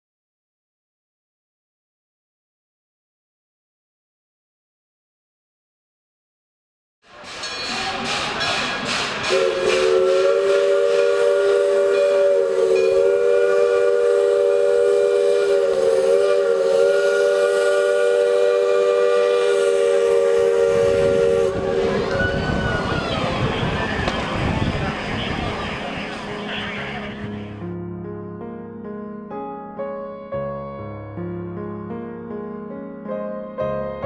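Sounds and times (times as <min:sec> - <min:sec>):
steam engine rhythmic beat: 0:07.1 - 0:22.0
steam locomotive whistle: 0:07.1 - 0:27.4.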